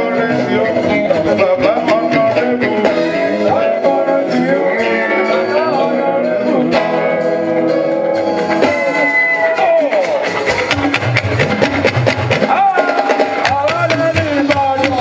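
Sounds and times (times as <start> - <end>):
person singing: 0.0 - 10.6
live band with electric guitars: 0.0 - 15.0.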